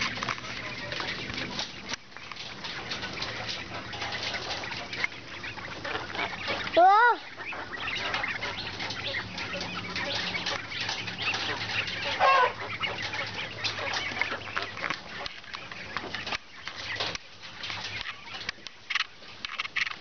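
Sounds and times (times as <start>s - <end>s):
quail pecking and scratching on wire: 0.0s - 20.0s
quail call: 3.3s - 15.5s.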